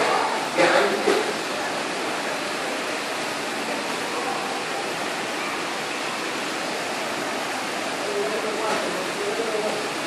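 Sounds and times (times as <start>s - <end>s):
fountain water splashing: 0.0s - 10.0s.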